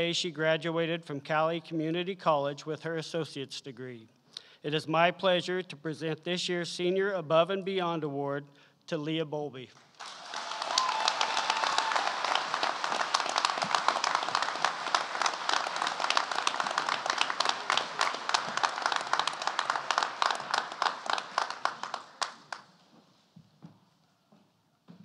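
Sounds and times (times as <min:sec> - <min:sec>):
audience applauding: 0:09.9 - 0:22.7.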